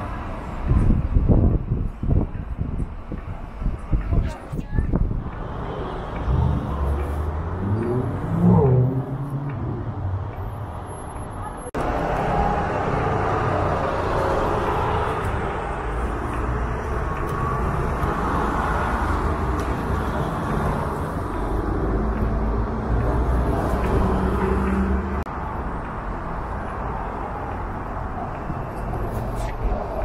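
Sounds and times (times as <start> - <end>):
buses and cars passing: 0.0 - 30.0.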